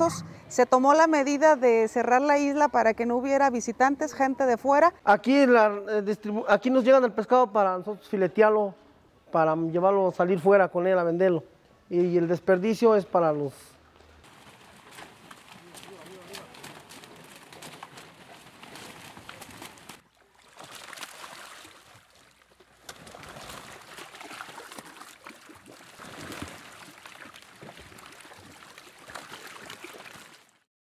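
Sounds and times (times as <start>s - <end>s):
water splashing and sloshing: 13.8s - 30.7s.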